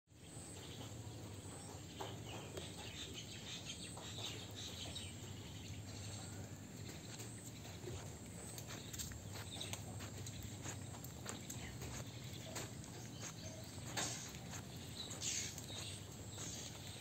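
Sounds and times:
low background hum: 0.2 - 17.0
bird calls: 0.3 - 17.0
insects chirring: 3.9 - 17.0.

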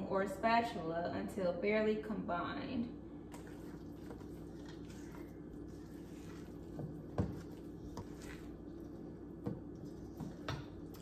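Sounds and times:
spatula squishing batter: 3.2 - 11.0.

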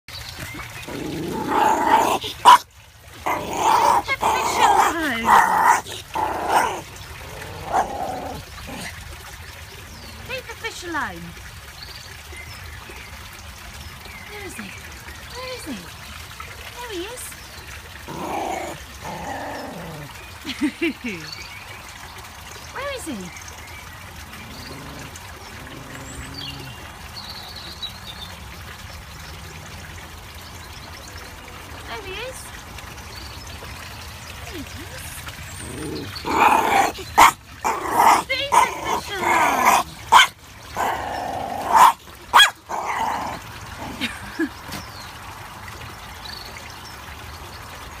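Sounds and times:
water trickling into pond: 0.0 - 48.0
small dog growling: 0.8 - 2.6, 3.2 - 9.0, 18.0 - 20.2, 24.3 - 26.9, 35.5 - 44.2
small dog barking: 1.9 - 2.7, 36.3 - 40.4, 41.6 - 42.9.

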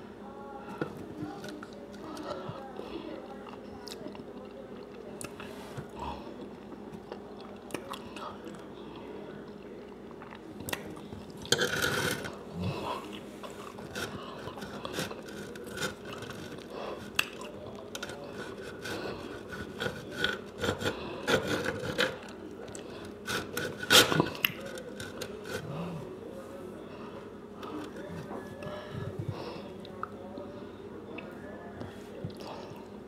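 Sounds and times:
knife scraping against tray: 11.5 - 12.4, 18.3 - 22.2, 23.2 - 25.6.

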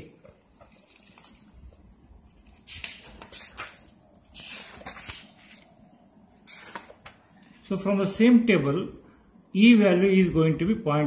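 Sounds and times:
book pages flipping: 0.1 - 7.7.

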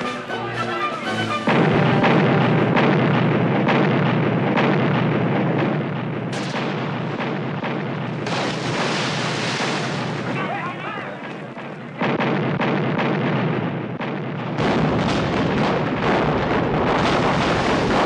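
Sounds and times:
film soundtrack music: 0.0 - 8.1
cannon fire: 1.2 - 18.0.

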